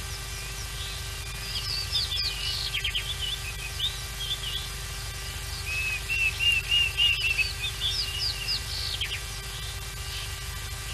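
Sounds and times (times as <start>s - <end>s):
bird chirps: 0.0s - 10.9s
bird whistled notes: 5.6s - 9.2s
downward-swept bird whistles: 5.6s - 9.2s.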